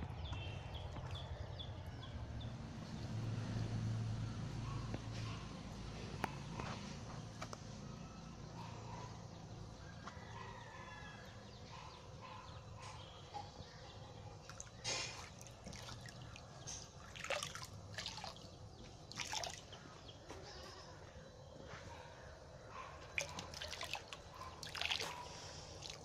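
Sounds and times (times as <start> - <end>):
water dripping and trickling: 0.2 - 1.4, 14.4 - 20.0, 23.0 - 26.0
short splashes: 14.5 - 18.5, 19.1 - 19.8, 23.2 - 25.2
water being poured: 14.5 - 18.5, 19.1 - 19.7, 23.2 - 25.2.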